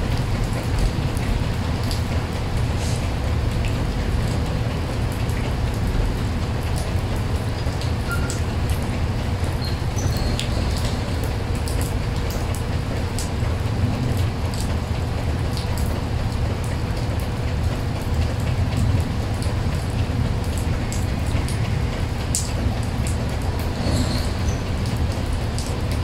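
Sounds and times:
raindrops splashing in puddle: 0.0s - 26.0s.

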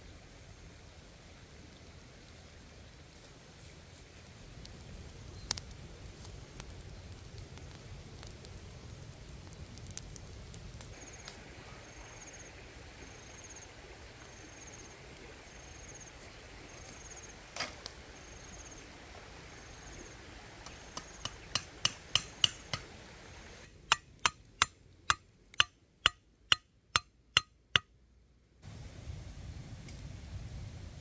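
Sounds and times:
faint insect chirping: 10.9s - 21.6s.

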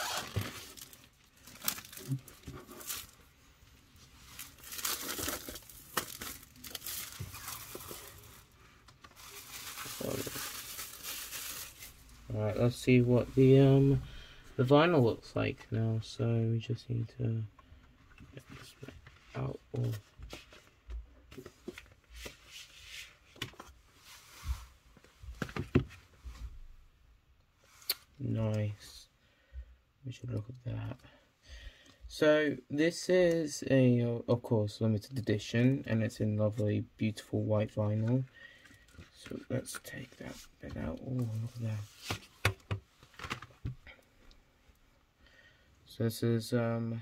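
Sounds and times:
plastic sleeve crinkling: 0.0s - 3.3s, 3.9s - 12.9s.

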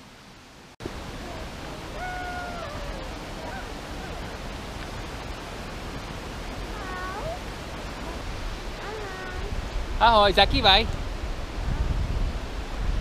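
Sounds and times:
steady rushing outdoor noise: 0.0s - 13.0s
faint high-pitched call: 1.3s - 4.2s.

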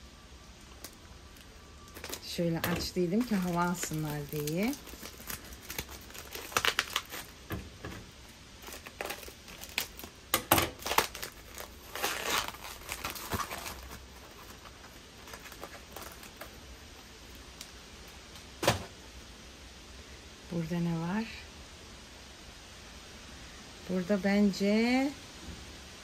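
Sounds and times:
packaging crinkling and rustling: 0.5s - 19.0s.

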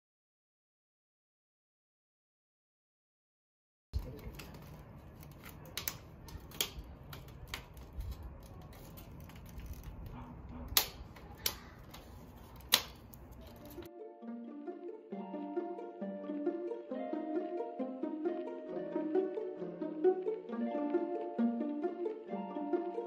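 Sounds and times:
clicks and taps on wire fence: 5.5s - 13.9s.

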